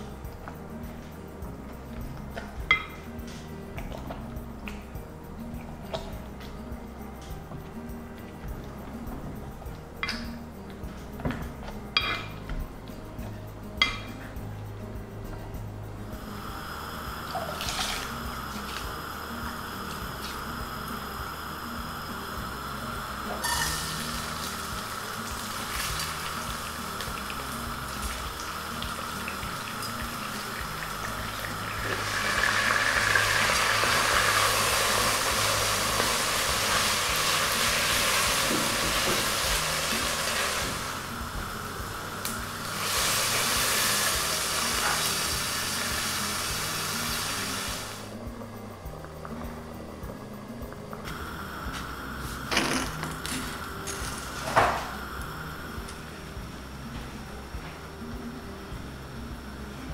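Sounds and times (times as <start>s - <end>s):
soft background music: 0.0s - 59.9s
water hissing in a pot: 16.0s - 48.3s, 51.0s - 56.7s.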